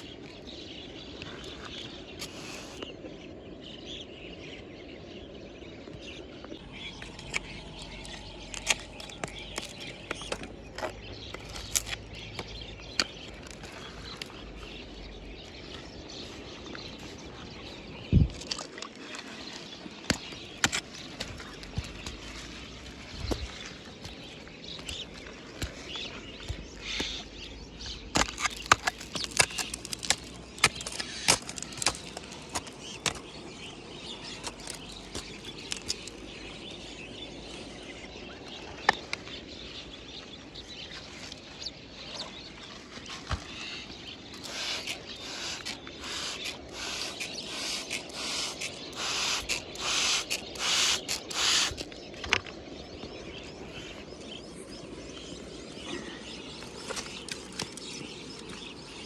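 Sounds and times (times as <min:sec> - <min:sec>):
loose dirt pattering down: 0:20.0 - 0:36.4.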